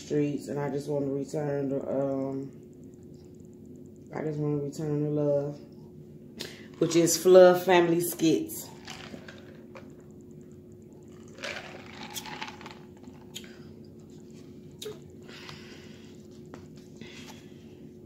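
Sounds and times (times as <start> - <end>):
low steady hum: 0.0 - 18.0
squeeze bottle squirting sauce: 11.4 - 13.5.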